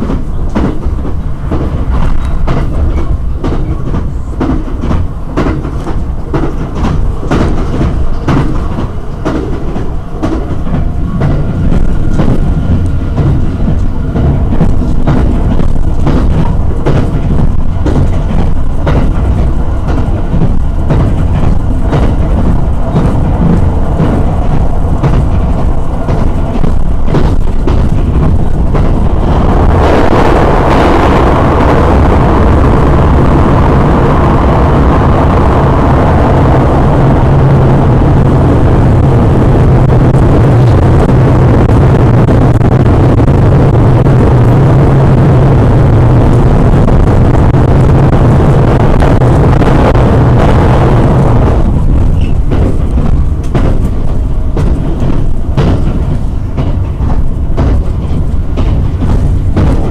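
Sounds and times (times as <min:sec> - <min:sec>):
train track noise with clicks: 0:00.0 - 0:59.9
train wheels roaring on rail: 0:00.0 - 0:59.9.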